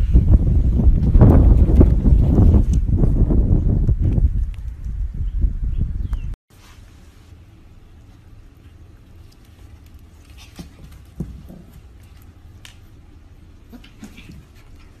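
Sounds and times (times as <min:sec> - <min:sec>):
small knocks and rustles: 0:09.3 - 0:12.9.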